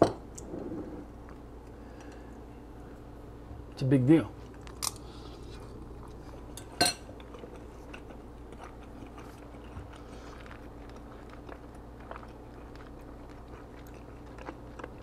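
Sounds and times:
faint chewing: 0:04.4 - 0:15.0
fork clinking on bowl: 0:06.6 - 0:07.1.

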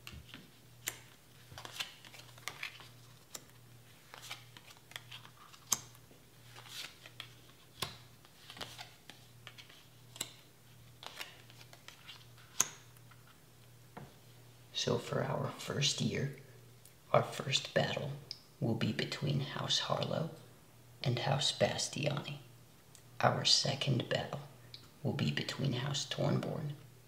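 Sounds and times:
cards clicking and sliding: 0:00.0 - 0:13.2.

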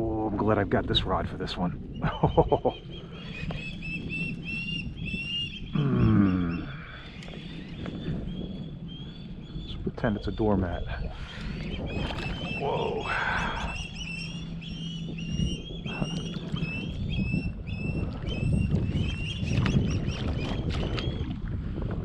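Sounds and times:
bird chirping: 0:01.9 - 0:21.2
fish thrashing and splashing: 0:11.4 - 0:13.4.

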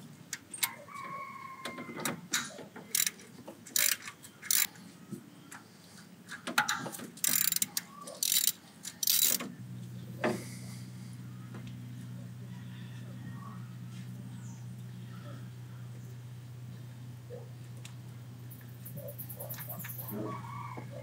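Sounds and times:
socket ratchet clicking: 0:02.9 - 0:03.2, 0:03.8 - 0:04.7, 0:07.2 - 0:09.5
steady low hum: 0:07.2 - 0:21.0.

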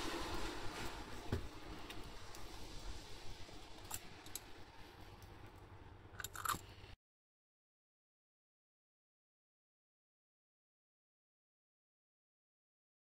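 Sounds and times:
faint low rumble: 0:00.0 - 0:07.0
metal parts clinking: 0:06.2 - 0:06.7.

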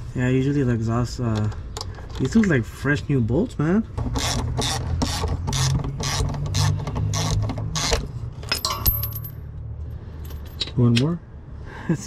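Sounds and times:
socket ratchet clicking: 0:04.1 - 0:08.0.

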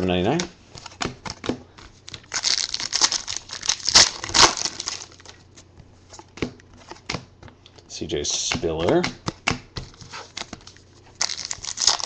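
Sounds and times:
foil wrapper crinkling: 0:02.1 - 0:05.4, 0:11.1 - 0:12.0.

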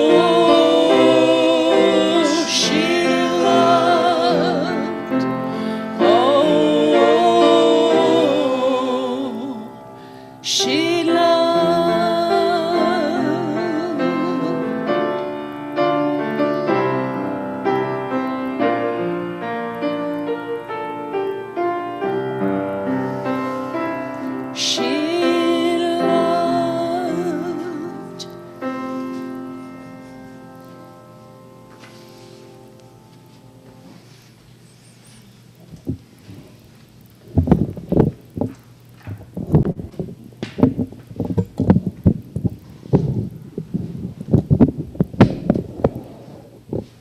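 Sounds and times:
person singing with vibrato: 0:00.0 - 0:17.3, 0:22.7 - 0:29.5
grand piano accompaniment: 0:00.0 - 0:34.1.

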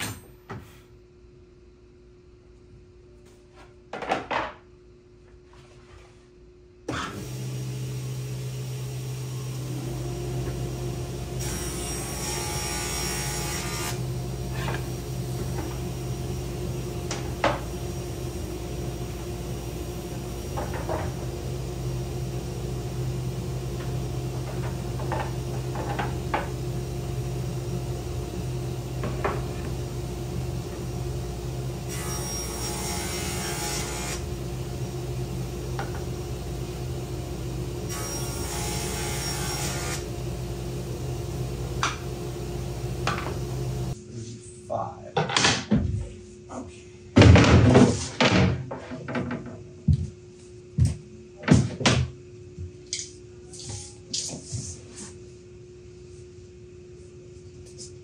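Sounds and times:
table saw humming: 0:07.1 - 0:44.0.

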